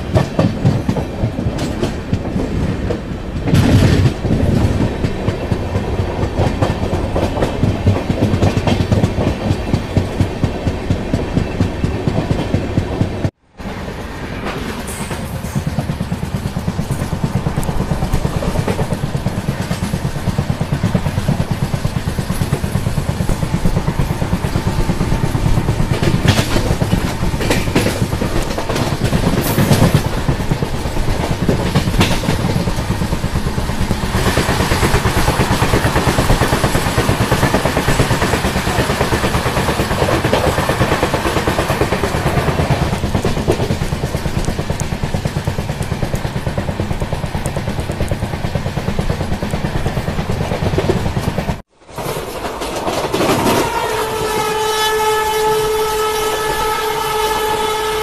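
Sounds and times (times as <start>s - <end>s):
train wheels rumbling and clattering: 0.0s - 58.0s
sharp clacks: 14.7s - 53.8s.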